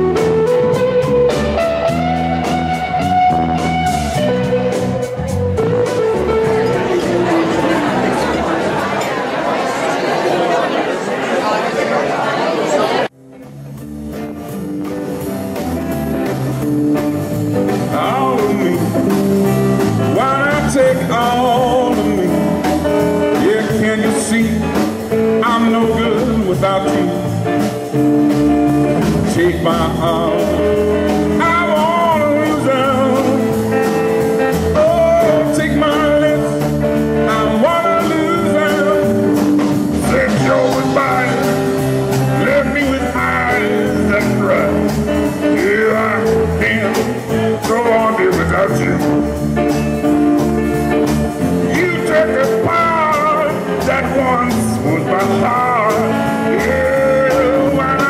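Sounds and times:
live band with electric guitar: 0.0 - 58.0
man singing: 16.2 - 58.0.

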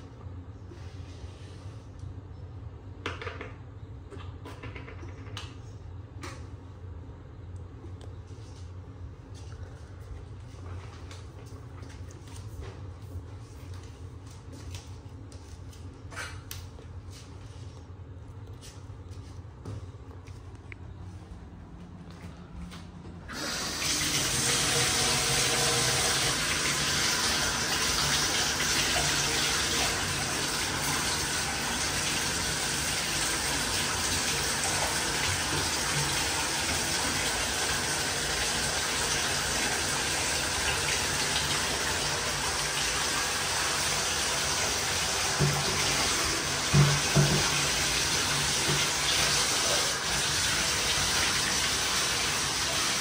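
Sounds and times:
shower water running into bathtub: 23.3 - 53.0.

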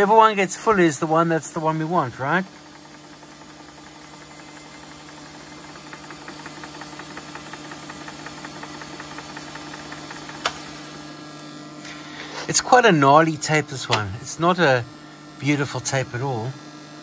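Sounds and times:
fast even ticking: 0.0 - 10.9
videotape recorder mechanical hum: 0.0 - 17.0
sharp click: 5.8 - 10.8, 13.8 - 14.2.

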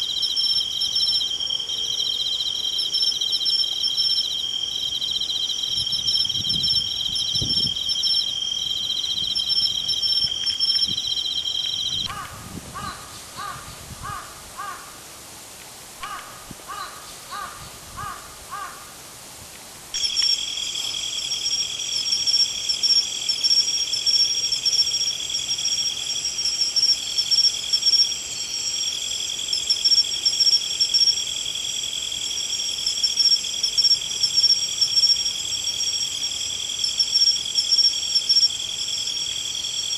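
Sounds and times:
crickets trilling: 0.0 - 15.1, 16.0 - 19.0, 19.9 - 39.9
crow cawing: 12.1 - 15.0, 16.0 - 18.9.

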